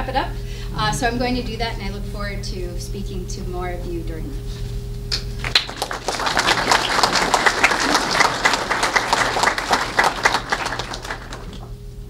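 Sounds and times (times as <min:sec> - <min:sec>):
audience applauding: 0:05.4 - 0:11.8.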